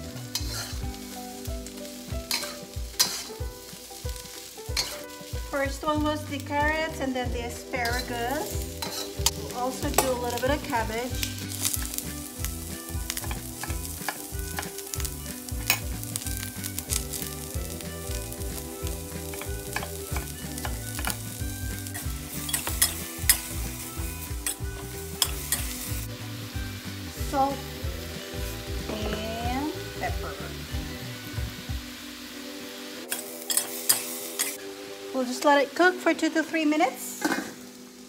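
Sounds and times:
vegetables sizzling in a wok: 0.0 - 38.0
utensils knocking on pan: 8.8 - 10.3, 13.1 - 15.0, 19.3 - 21.3.

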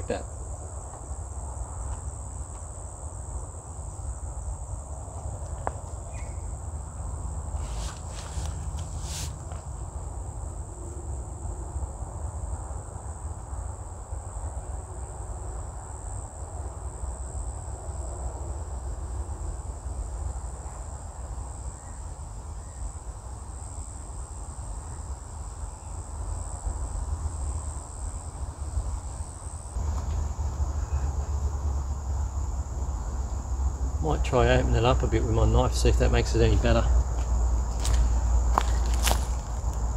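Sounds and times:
insects buzzing: 0.0 - 39.9
constant low rumble: 26.5 - 39.9.

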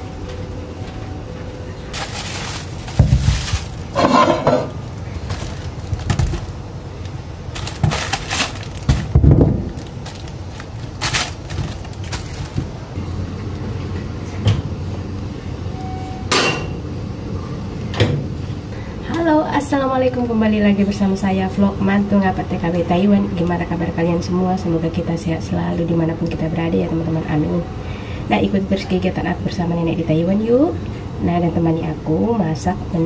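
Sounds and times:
plastic bag rustling: 1.9 - 12.9.

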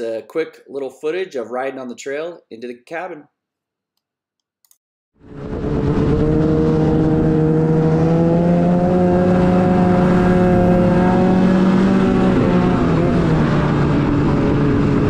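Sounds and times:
snowmobile engine running: 5.3 - 15.0.

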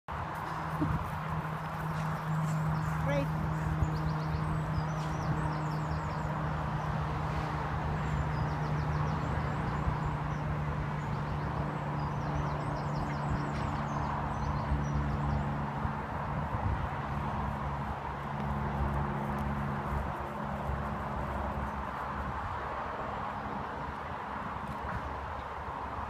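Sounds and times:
rushing background noise: 0.1 - 26.0
birds chirping: 0.3 - 7.0.

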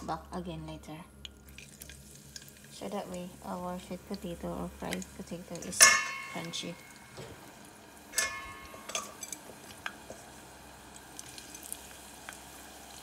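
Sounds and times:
fries deep-frying in hot oil: 1.3 - 13.0
sharp metallic clink: 8.2 - 9.2.

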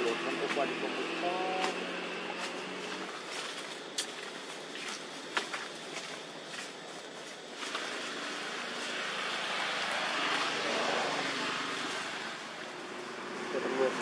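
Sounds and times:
vehicle passing at a distance: 0.0 - 3.5, 7.7 - 14.0
rustling in dry leaves: 0.0 - 14.0.

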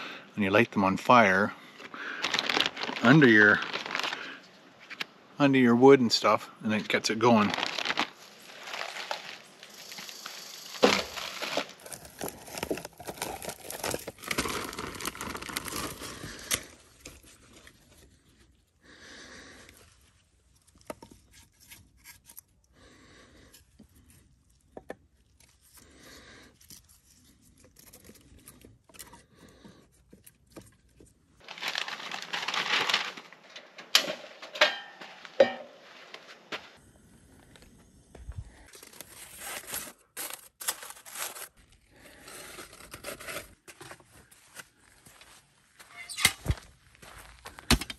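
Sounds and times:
paper and plastic bag crinkling: 1.8 - 4.5, 7.0 - 18.0, 30.4 - 34.6, 38.7 - 44.6
newspaper tearing and crumpling: 2.1 - 4.4, 7.2 - 17.3, 31.4 - 33.7, 38.7 - 43.8.

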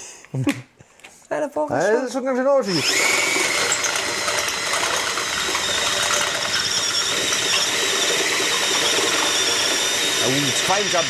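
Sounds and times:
drill cutting into steel: 2.7 - 11.0.

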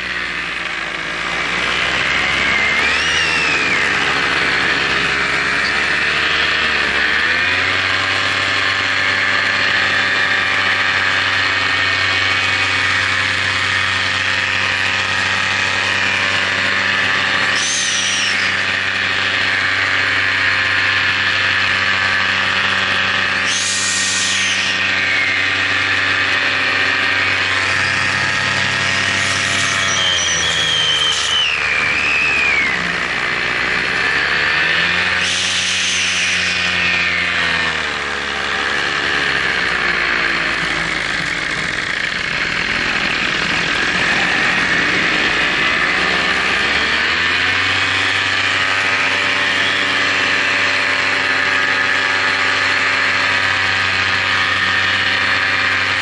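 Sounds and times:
drone motors and propellers whining: 0.0 - 56.0
short high whine: 2.4 - 6.8, 10.8 - 21.0, 22.0 - 34.1, 35.0 - 37.6, 43.3 - 55.9.

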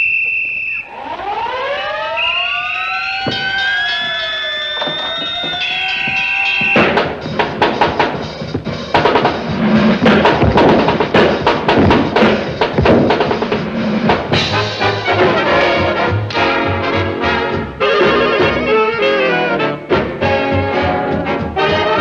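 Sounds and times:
drum and snare hits: 4.8 - 15.4
brass: 13.5 - 22.0.

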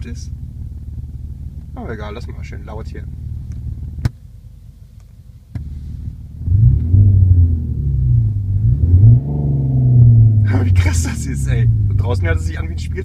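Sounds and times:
low hum: 0.0 - 13.0
synthetic engine revving through speakers: 6.4 - 12.2.

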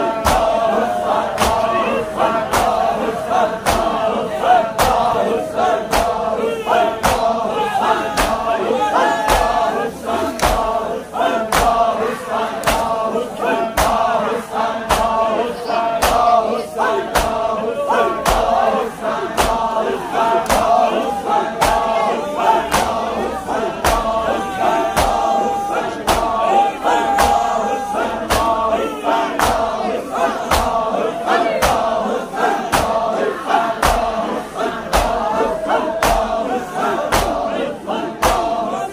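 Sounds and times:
men chanting in unison: 0.0 - 38.9
palms slapping chests: 16.0 - 16.3.

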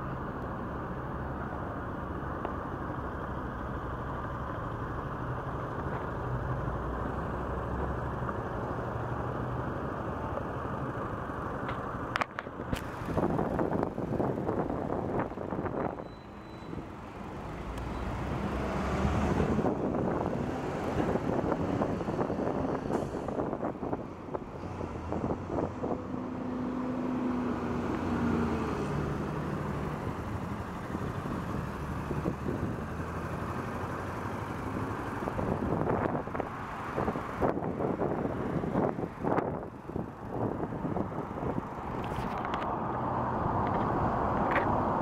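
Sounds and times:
vehicle engine: 0.0 - 45.0
wind buffeting microphone: 12.6 - 16.0, 18.8 - 26.4, 35.2 - 42.7.

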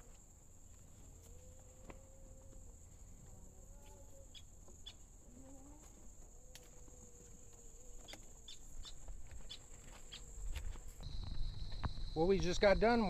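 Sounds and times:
high-pitched insect drone: 11.0 - 13.0.

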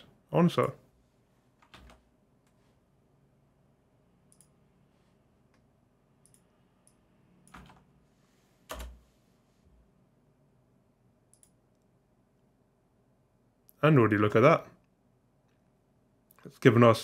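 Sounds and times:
computer mouse and keyboard clicks: 4.3 - 4.6.

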